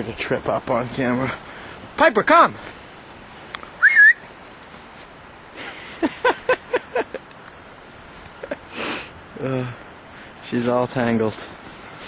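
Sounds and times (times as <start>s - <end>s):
person whistling for a dog: 3.8s - 4.2s.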